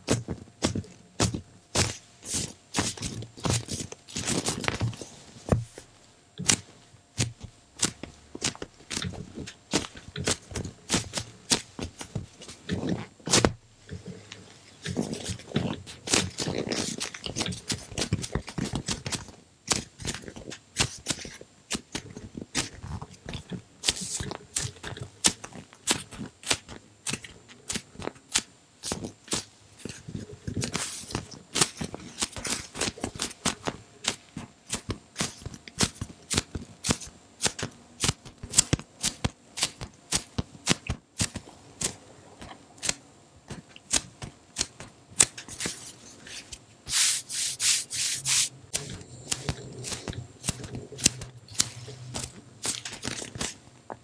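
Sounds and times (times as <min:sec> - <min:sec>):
hands squeezing foam squishy: 0:00.0 - 0:05.8.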